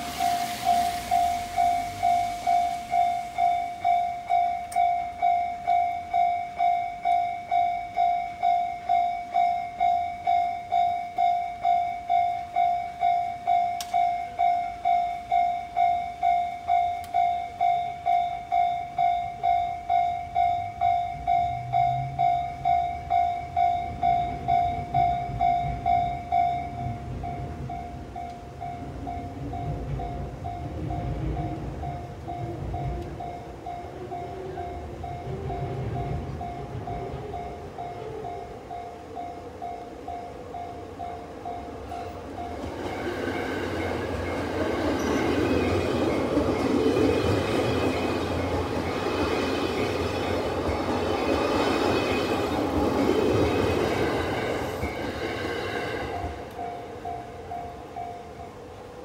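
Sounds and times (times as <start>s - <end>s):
level-crossing warning bell: 0.0s - 59.0s
train rumbling: 0.0s - 59.0s
train whine: 0.0s - 59.0s.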